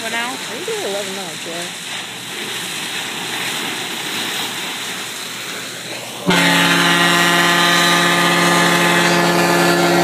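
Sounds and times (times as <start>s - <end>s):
water rushing along ship hull: 0.0s - 10.0s
low foghorn blast: 6.2s - 10.0s.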